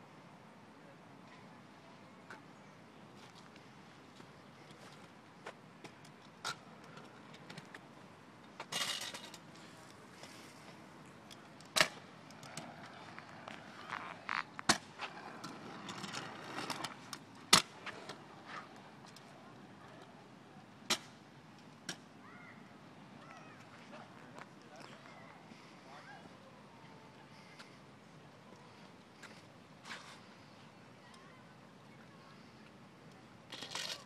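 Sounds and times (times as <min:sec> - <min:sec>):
scooter wheels rolling on concrete: 0:03.2 - 0:22.0, 0:28.4 - 0:34.0
scooter clacking on concrete: 0:11.3 - 0:19.2.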